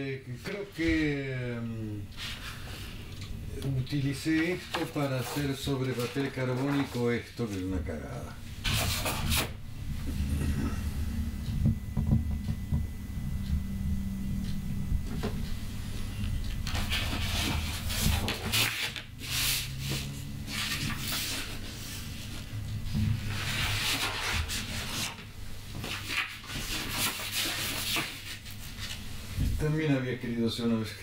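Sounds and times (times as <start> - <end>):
paper sheets rustling: 3.7 - 7.7, 8.6 - 9.5, 16.7 - 29.0.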